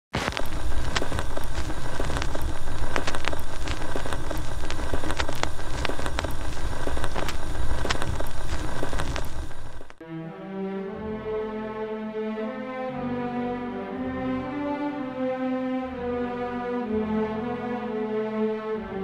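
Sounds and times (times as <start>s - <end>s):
loud crackling with pops: 0.1s - 10.0s
slow bowed-string music: 10.0s - 19.0s.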